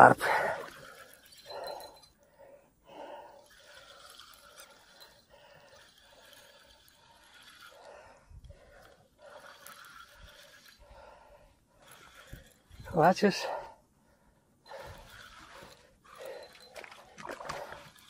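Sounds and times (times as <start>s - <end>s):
fishing reel whirring: 0.0s - 13.6s, 14.6s - 18.0s.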